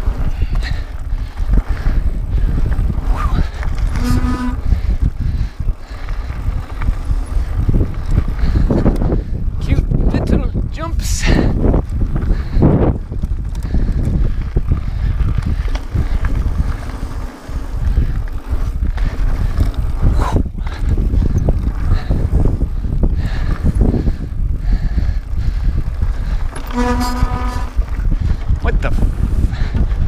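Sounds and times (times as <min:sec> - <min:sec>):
tyres rumbling over gravel: 0:00.0 - 0:08.9, 0:11.6 - 0:22.6
wind rushing on microphone: 0:00.0 - 0:30.0.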